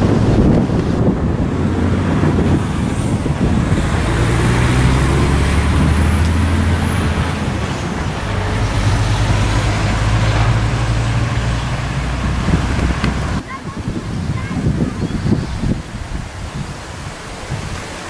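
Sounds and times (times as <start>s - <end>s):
vehicle engine humming: 0.0s - 13.4s.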